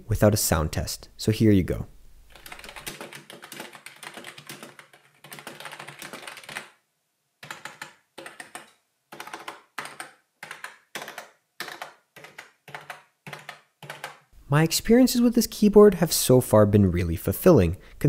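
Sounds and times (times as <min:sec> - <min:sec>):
keyboard typing: 0:02.3 - 0:06.8, 0:07.4 - 0:14.3.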